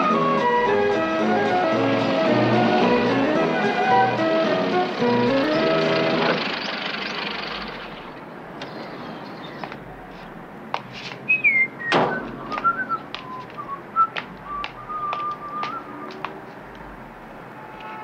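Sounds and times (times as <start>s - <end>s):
music: 0.0s - 6.4s
man whistling short notes: 11.3s - 16.0s
car door shutting: 11.9s - 12.8s.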